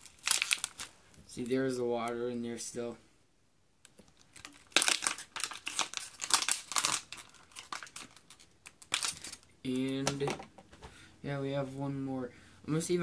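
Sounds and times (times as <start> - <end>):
plastic bottle crinkling: 0.0 - 1.4, 4.0 - 10.4.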